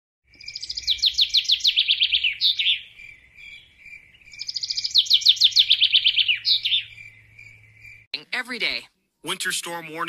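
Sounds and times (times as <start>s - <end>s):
songbird singing a trill: 0.3s - 8.1s.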